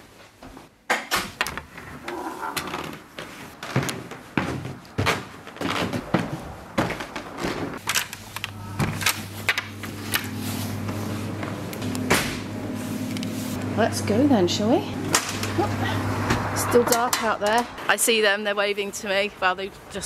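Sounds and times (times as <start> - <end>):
footsteps: 2.0 - 7.8
knocks and thuds of doors and bags: 2.6 - 7.8
steady low hum: 6.0 - 16.8.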